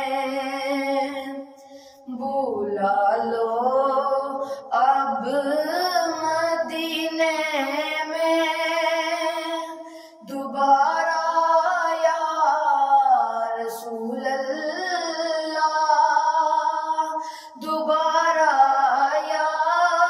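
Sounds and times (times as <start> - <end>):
high voice singing: 4.6 - 20.0.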